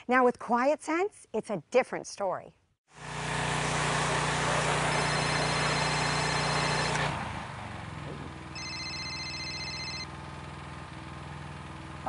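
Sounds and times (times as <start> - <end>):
pressure washer engine running: 3.0 - 12.0
phone ringtone: 5.0 - 7.0, 8.6 - 10.1.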